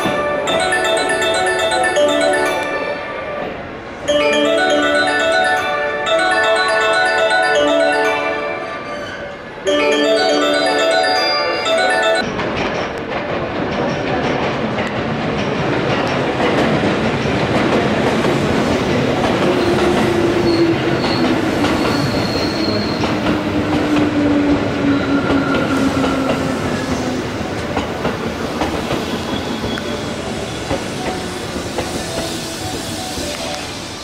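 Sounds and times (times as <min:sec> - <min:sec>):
train wheels clicking over rail joints: 0:12.3 - 0:33.8.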